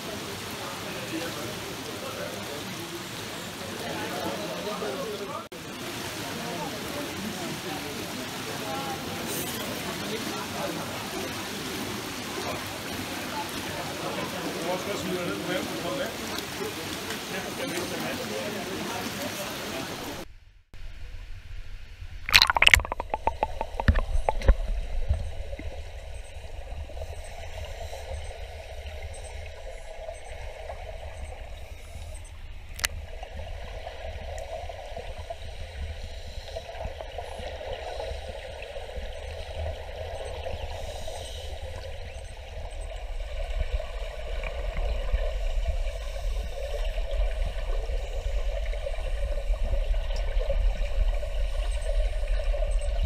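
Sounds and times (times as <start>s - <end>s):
low underwater rumble: 20.3s - 53.0s
underwater splashing and knocking: 22.3s - 35.4s
bubbling of exhaled air: 22.3s - 53.0s.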